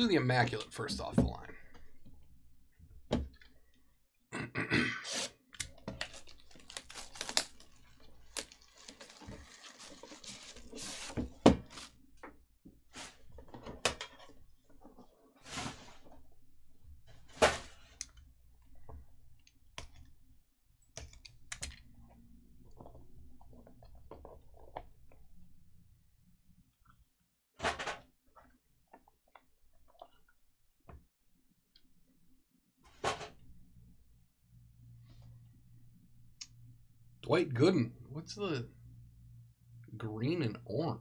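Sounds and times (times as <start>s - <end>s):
plastic wrap being peeled: 6.0s - 11.1s.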